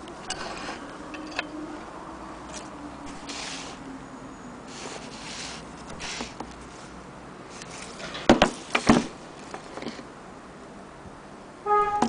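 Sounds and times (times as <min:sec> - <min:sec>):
wood rubbing and sliding: 0:00.2 - 0:01.5, 0:04.7 - 0:06.9
sharp wooden knocks: 0:08.3 - 0:09.1.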